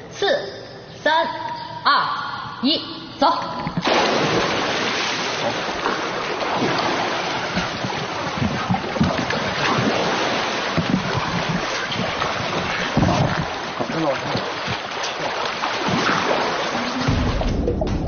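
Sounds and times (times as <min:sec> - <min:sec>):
swimmer splashing in pool: 0:03.8 - 0:17.5.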